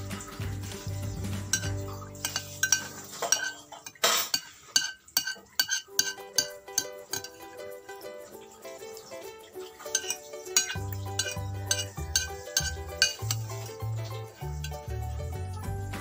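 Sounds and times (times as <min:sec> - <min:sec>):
background music: 0:00.0 - 0:04.2, 0:05.8 - 0:16.0
spoon clinking on plastic container: 0:01.6 - 0:07.5, 0:09.9 - 0:15.0.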